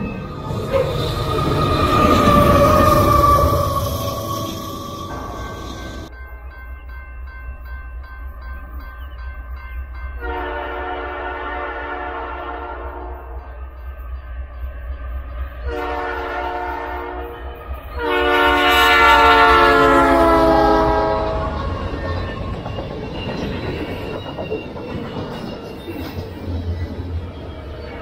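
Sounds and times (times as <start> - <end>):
train air horn blasts: 10.2 - 13.4, 15.7 - 21.8
wheels clacking over rail joints: 20.6 - 28.0.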